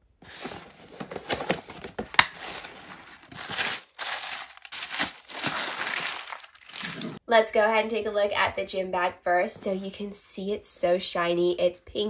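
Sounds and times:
cardboard box being opened: 0.2s - 7.2s
tissue paper rustling: 0.2s - 7.2s.

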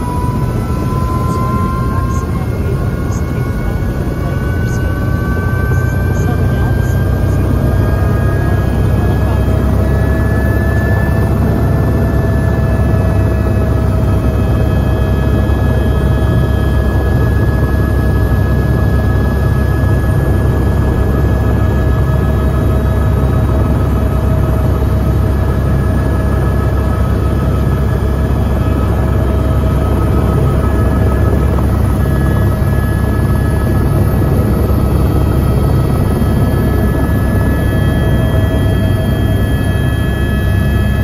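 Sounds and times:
helicopter engine and rotor: 0.0s - 41.0s.

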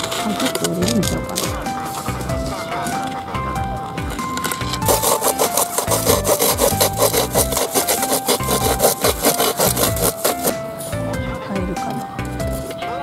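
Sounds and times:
hand saw cutting wood: 0.0s - 3.3s, 4.0s - 10.6s.

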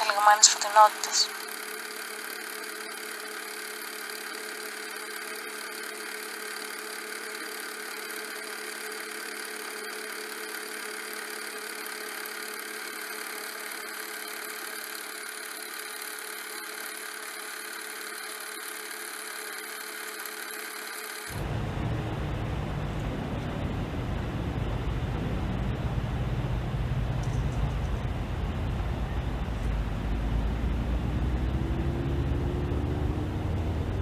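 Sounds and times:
film projector mechanism whirring: 1.3s - 21.4s
low rumbling ambience: 21.3s - 34.0s.

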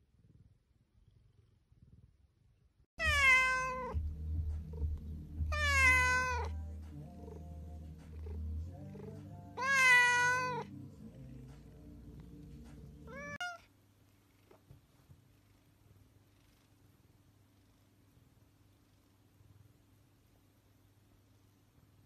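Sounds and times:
faint low hum: 0.0s - 22.0s
cat meowing: 3.0s - 4.0s, 5.5s - 6.6s, 9.6s - 10.7s, 13.1s - 13.7s.

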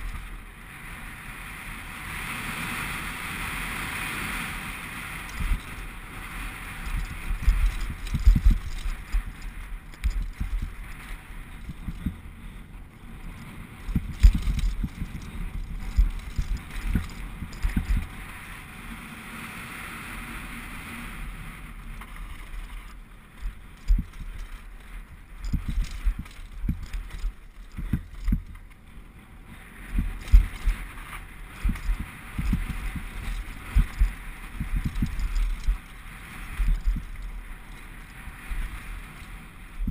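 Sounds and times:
bike frame rattling over rocks: 0.0s - 0.4s, 4.2s - 18.5s, 21.4s - 39.9s.

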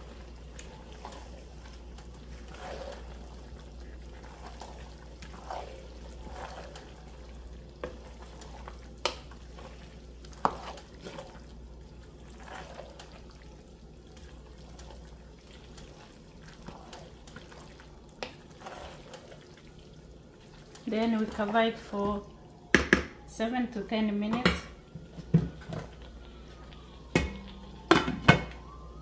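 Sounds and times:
wooden spoon stirring in pot: 0.0s - 28.8s
spoon knocking on pot: 22.7s - 23.1s.

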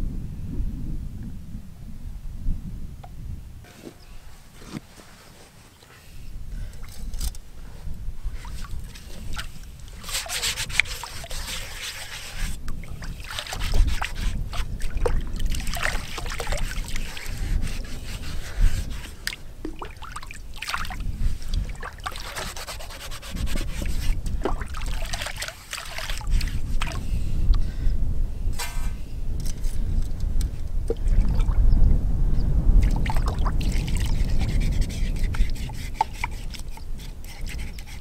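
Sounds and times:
water splashing and trickling: 8.2s - 27.2s, 30.4s - 31.7s, 32.8s - 38.0s
pan being scrubbed: 8.4s - 14.8s, 15.6s - 19.4s, 21.3s - 27.0s, 33.9s - 38.0s.

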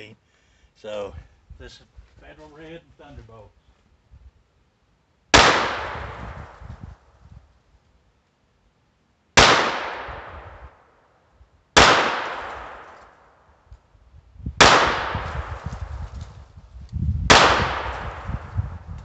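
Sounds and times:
pistol shots with echo: 5.3s - 6.3s, 9.4s - 10.6s, 11.8s - 13.1s, 14.6s - 15.6s, 17.3s - 18.4s.

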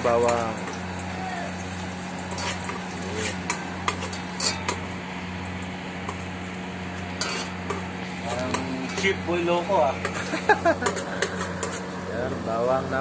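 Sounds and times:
utensil clinking against metal pot: 2.3s - 4.9s, 7.2s - 9.4s, 10.0s - 11.9s.

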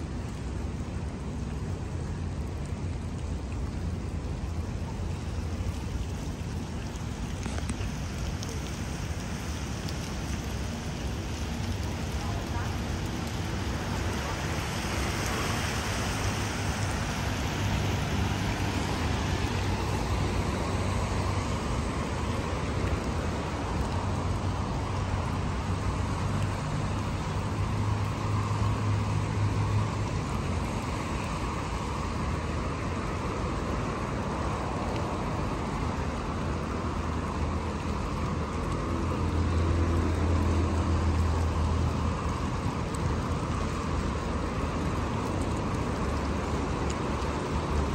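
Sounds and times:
rain traffic hiss: 0.0s - 47.9s
passing vehicle engines droning: 8.8s - 47.9s.

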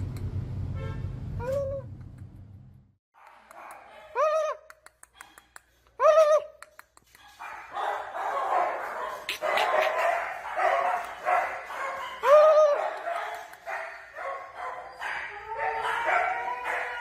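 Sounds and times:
dogs barking: 3.2s - 4.2s, 7.2s - 17.0s
dog yelping: 7.2s - 17.0s.

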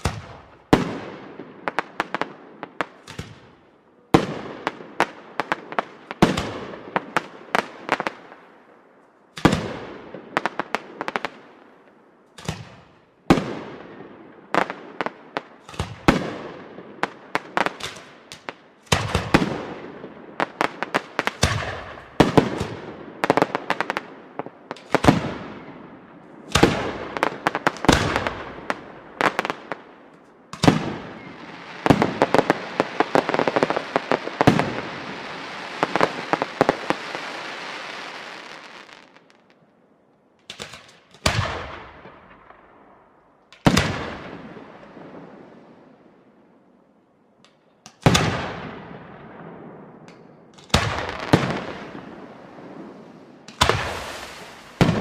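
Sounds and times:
heavy firework bangs: 26.5s - 29.7s, 30.6s - 38.2s, 53.6s - 55.0s
firework crackling and hissing: 30.6s - 39.5s, 50.7s - 55.0s.

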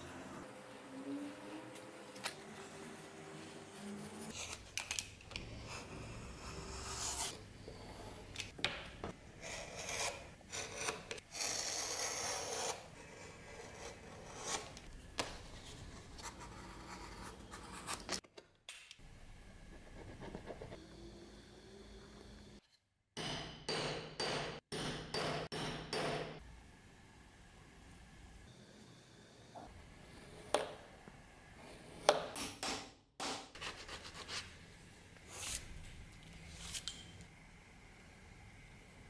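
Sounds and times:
knife rasping along a file: 9.4s - 14.7s.

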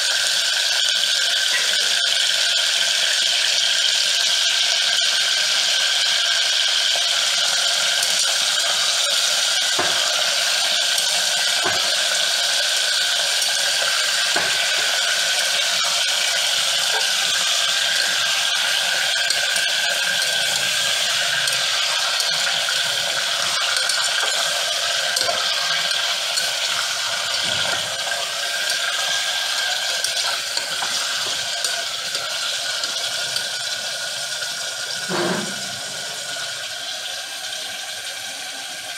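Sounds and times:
meat sizzling in a pot: 0.0s - 38.9s
metal spoon scraping a pot: 12.9s - 33.7s.

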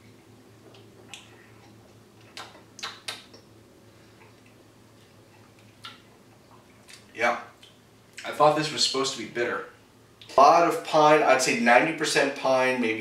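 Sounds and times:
low room hum: 0.0s - 13.0s
lip smacks and tongue clicks: 0.7s - 3.5s, 5.3s - 8.3s.

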